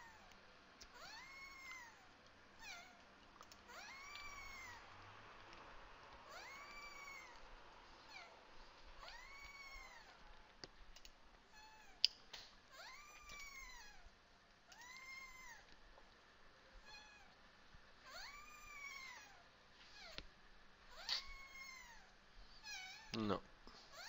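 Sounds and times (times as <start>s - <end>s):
cat meowing: 0.9s - 3.0s, 3.7s - 4.8s, 6.2s - 7.4s, 9.0s - 10.2s, 12.7s - 14.1s, 14.7s - 15.7s, 16.8s - 17.3s, 18.0s - 20.2s, 20.9s - 23.2s.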